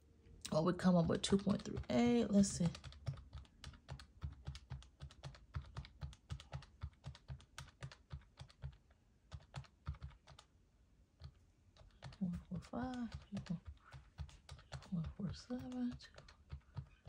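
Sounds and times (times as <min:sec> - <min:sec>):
calculator keys clicking: 0:01.0 - 0:10.5, 0:11.2 - 0:17.0.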